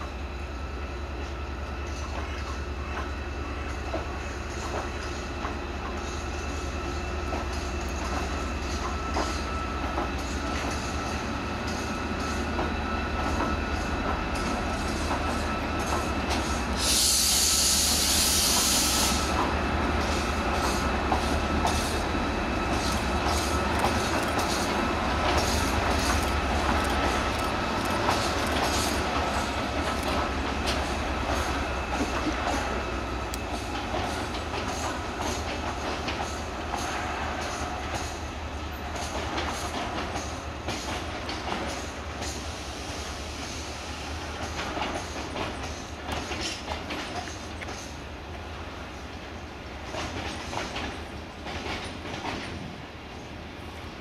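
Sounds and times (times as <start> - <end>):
diesel locomotive engine hum: 0.0 - 54.0
train wheels clicking on rails: 0.0 - 54.0
loud hiss: 14.8 - 35.6, 41.7 - 46.1.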